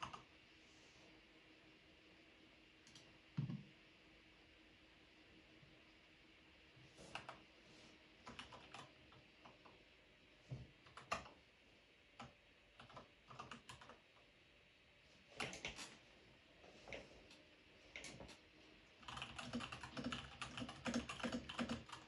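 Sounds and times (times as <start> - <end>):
mechanical keyboard typing: 0.0 - 0.3, 8.3 - 8.9, 10.9 - 11.4, 12.2 - 14.0, 15.4 - 15.9, 19.0 - 22.0.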